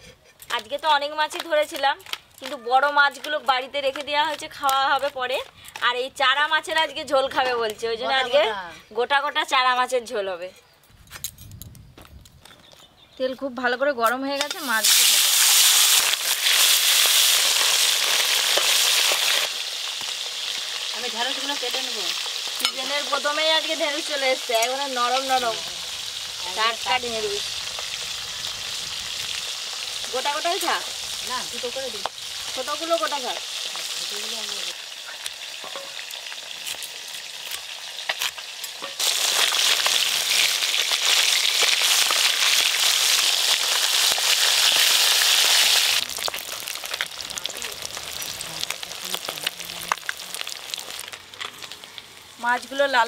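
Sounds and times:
fish frying in hot oil: 14.4s - 53.0s.

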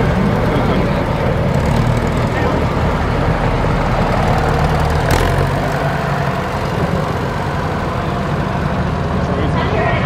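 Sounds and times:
tractor engine running: 0.0s - 10.0s.

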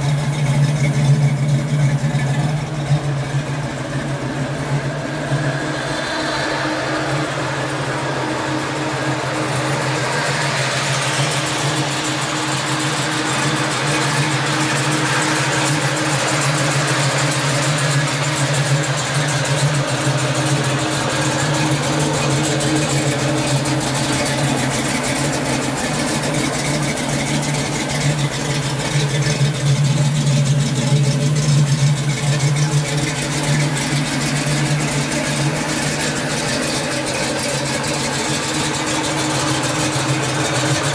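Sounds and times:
car engine idling: 0.0s - 40.9s.

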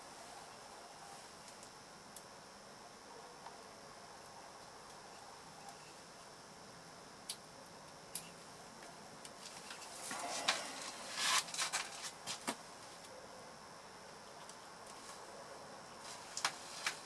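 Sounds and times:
rustling: 9.4s - 13.0s, 16.0s - 17.0s.

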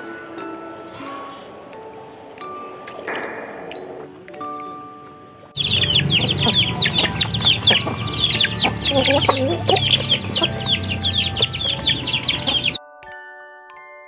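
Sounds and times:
ducklings peeping: 5.6s - 12.8s.

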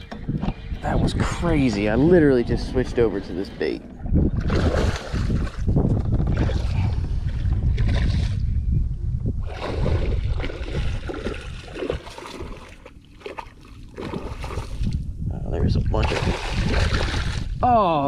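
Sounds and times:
wind on microphone: 0.0s - 12.6s, 14.0s - 18.0s
fish splashing in water: 9.5s - 14.9s, 16.0s - 17.5s.

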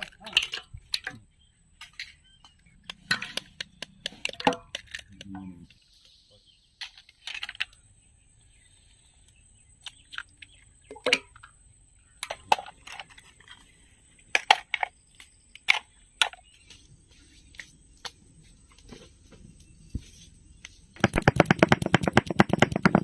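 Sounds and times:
hard objects clicking and knocking: 1.8s - 5.8s, 21.0s - 23.0s.

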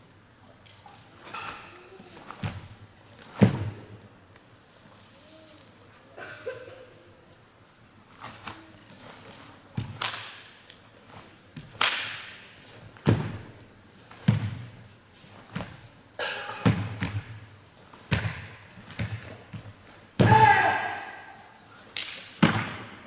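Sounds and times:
bare feet thudding on mat: 2.3s - 3.9s, 13.0s - 14.8s
karate uniform snapping: 9.4s - 10.9s, 11.6s - 12.4s, 21.9s - 22.5s.

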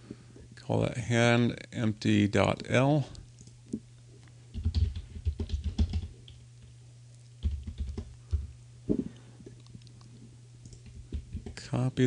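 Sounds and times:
computer keyboard typing: 4.5s - 6.4s, 7.4s - 8.1s, 10.6s - 11.6s.

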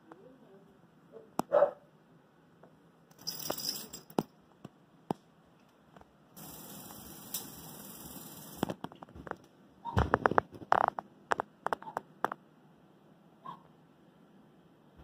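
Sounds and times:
metal bowls and kibble clattering: 3.1s - 4.2s
steady hiss: 6.3s - 8.8s.

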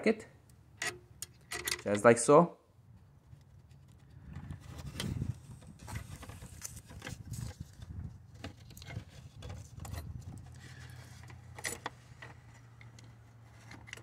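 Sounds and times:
metal tools clicking and knocking: 0.8s - 1.9s.

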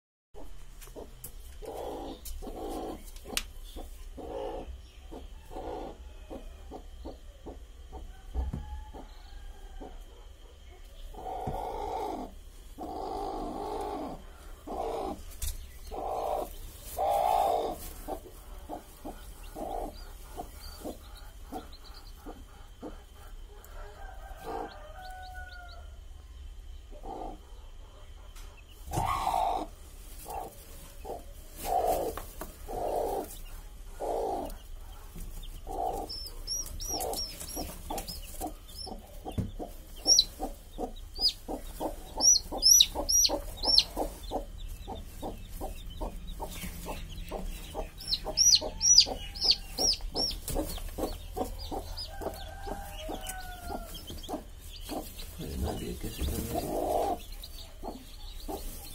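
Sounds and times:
hen clucking: 0.4s - 8.5s, 11.1s - 25.8s, 26.9s - 58.9s
chicks peeping: 0.4s - 58.9s.

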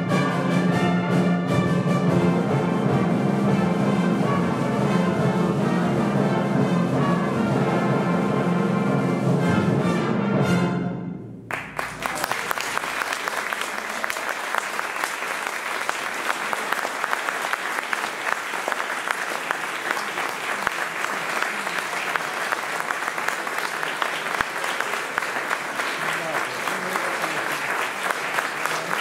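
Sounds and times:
audience applause: 11.5s - 29.0s.

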